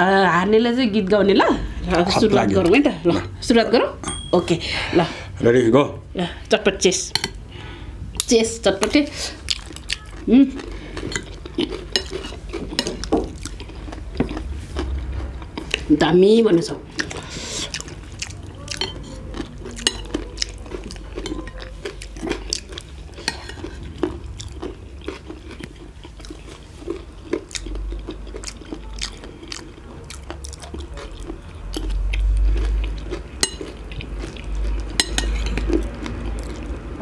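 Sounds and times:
spoons clinking on plates: 4.0 - 4.5, 11.0 - 13.1, 19.8 - 20.2, 33.4 - 33.8, 34.9 - 35.7
chewing and crunching: 9.2 - 15.9, 16.9 - 37.0.

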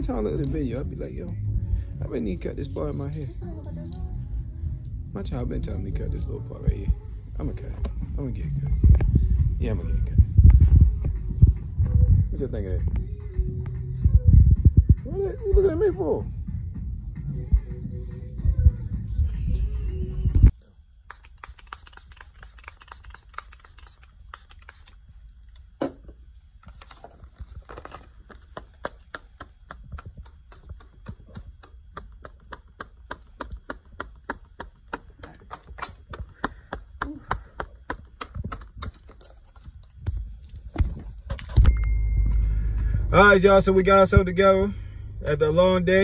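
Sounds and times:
faint low hum: 39.2 - 46.0.

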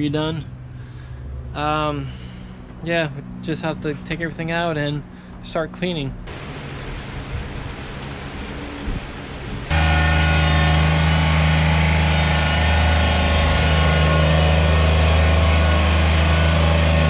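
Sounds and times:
tractor engine running: 6.3 - 17.0.

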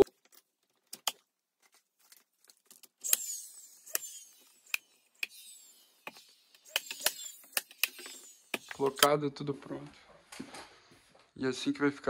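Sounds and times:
nailer shots: 3.0 - 9.1
nailer whirring: 3.0 - 9.1.

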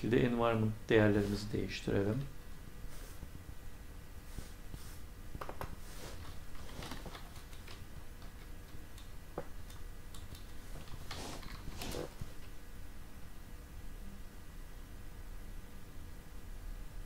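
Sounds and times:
keyboard typing clicks: 7.1 - 11.6.

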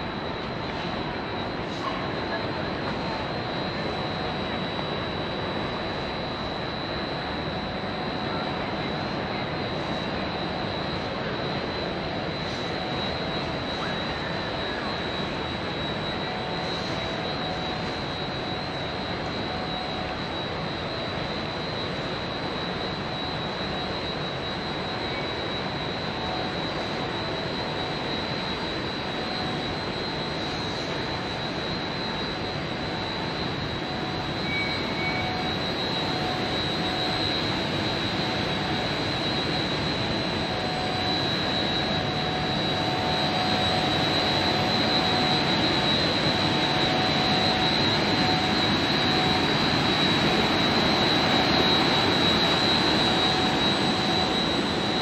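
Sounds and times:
thin high whine: 12.4 - 55.0.

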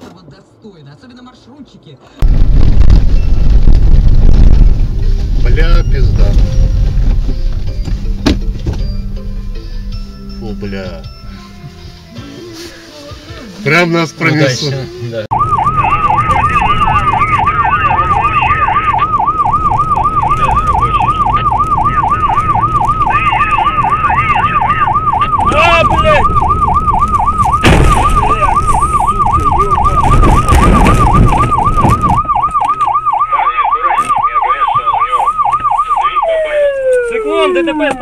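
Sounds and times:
engine and road noise: 0.0 - 38.0
heavy thud: 6.0 - 9.0, 27.5 - 28.8, 29.8 - 32.4
police siren yelping: 15.3 - 38.0.

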